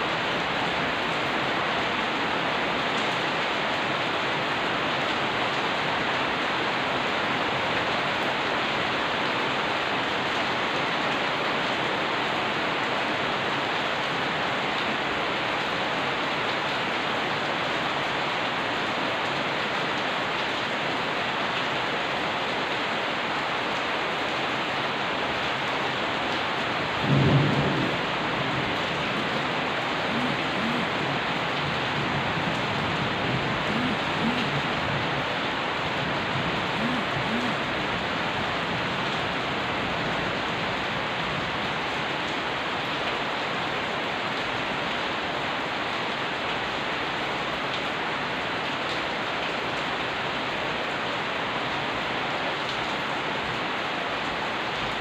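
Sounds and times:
steady rain falling: 0:00.0 - 0:55.0
low rumble of thunder: 0:26.8 - 0:35.2.

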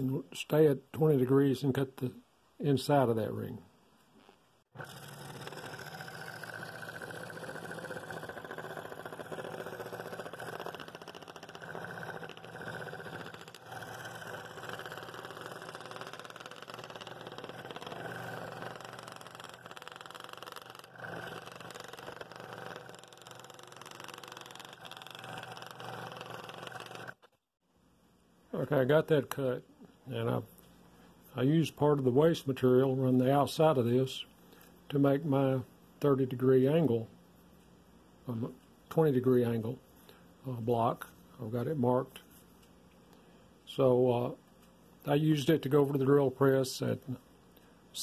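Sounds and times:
scroll saw cutting wood: 0:04.8 - 0:27.4.

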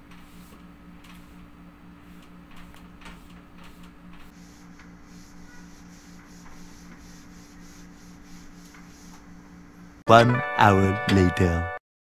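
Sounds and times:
cloth rubbing on glass: 0:03.1 - 0:09.4.

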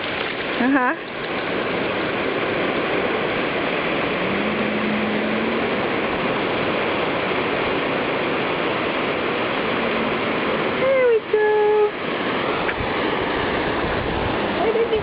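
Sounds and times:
ocean surf washing on beach: 0:00.0 - 0:15.0.

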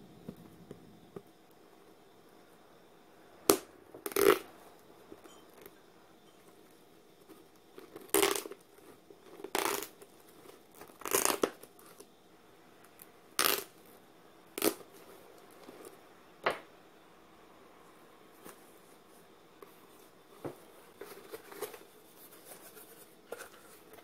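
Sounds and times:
knife cutting packing tape: 0:03.5 - 0:04.4, 0:08.1 - 0:08.6, 0:09.4 - 0:09.9, 0:10.8 - 0:11.6, 0:13.4 - 0:13.7, 0:14.6 - 0:14.8.

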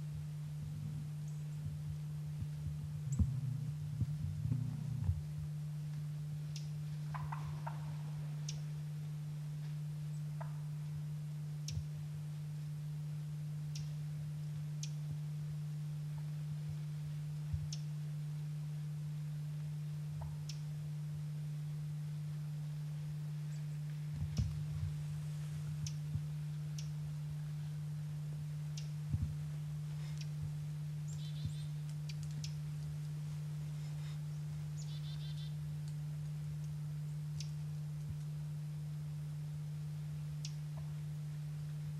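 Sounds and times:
soft low thumps: 0:00.0 - 0:08.0, 0:23.9 - 0:27.6, 0:28.6 - 0:31.8
steady low hum: 0:00.0 - 0:41.9.

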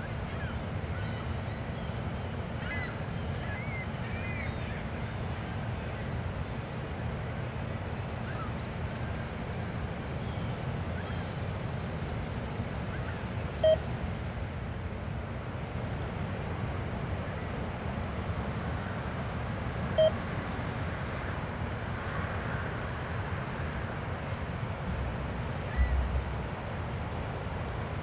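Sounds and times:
water birds chirping: 0:23.8 - 0:28.0
ship engines rumbling: 0:24.7 - 0:28.0.

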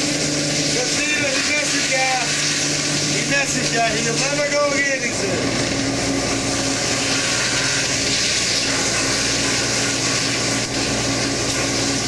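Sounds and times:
boat engine drone: 0:00.0 - 0:12.0
deck machinery: 0:00.0 - 0:12.0.

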